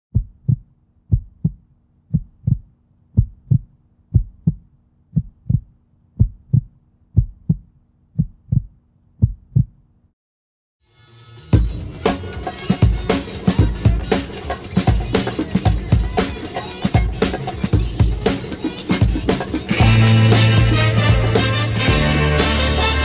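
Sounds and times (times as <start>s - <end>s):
heartbeat thumps: 0.1s - 9.8s.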